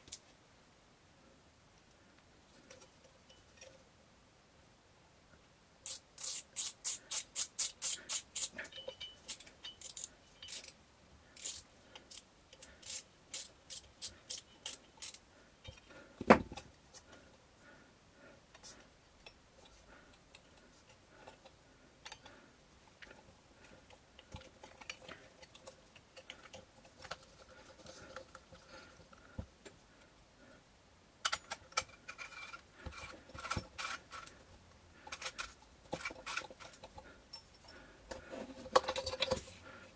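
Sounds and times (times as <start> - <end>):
small metal clicks and rattles: 5.8 - 10.8, 18.5 - 22.4, 23.0 - 29.8, 31.2 - 39.6.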